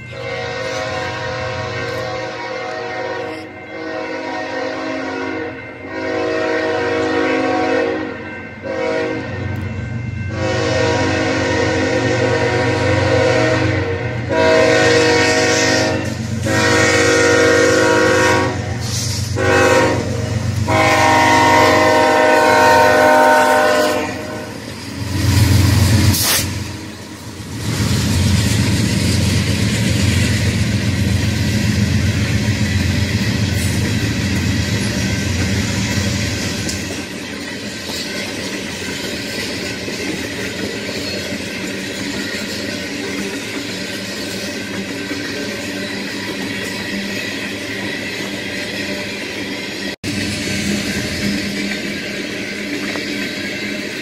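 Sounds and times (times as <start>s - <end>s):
train air horn blasts: 0.1s - 9.6s, 10.3s - 24.7s
wheels clattering on rail: 14.8s - 54.0s.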